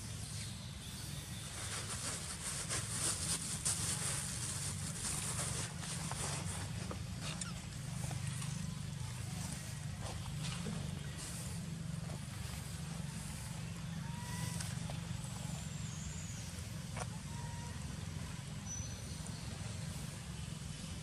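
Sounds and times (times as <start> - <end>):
distant engine rumble: 0.0 - 21.0.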